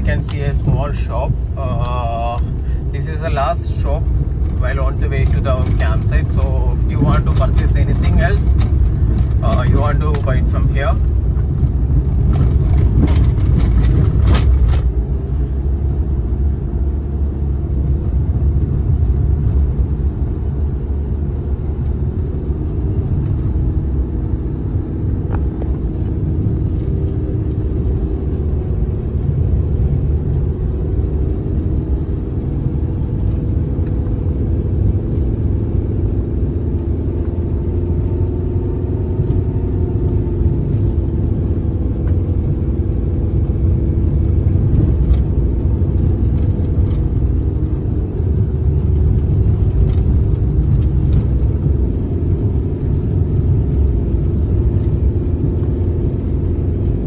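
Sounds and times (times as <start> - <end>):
sharp clicks and rattles: 0.0 - 15.0, 43.7 - 57.0
car engine and tyre rumble: 0.0 - 57.0.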